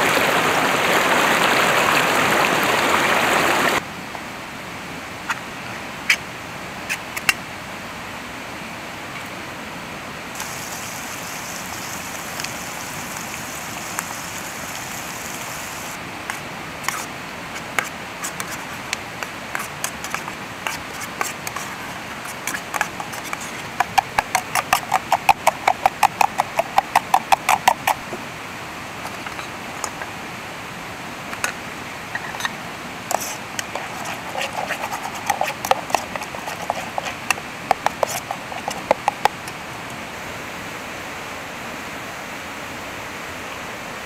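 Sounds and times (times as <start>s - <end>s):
steady high hiss: 10.2s - 23.9s.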